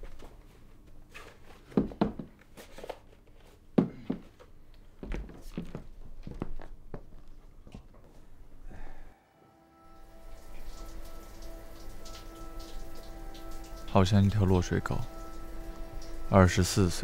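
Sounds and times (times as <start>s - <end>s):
soft knocks and rustles: 0.0s - 4.4s.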